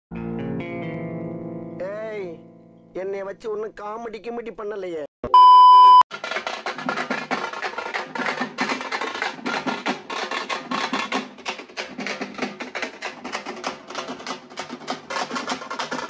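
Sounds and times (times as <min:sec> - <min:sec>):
high beep: 0:05.2 - 0:06.0
frame drums beaten fast: 0:06.2 - 0:16.0.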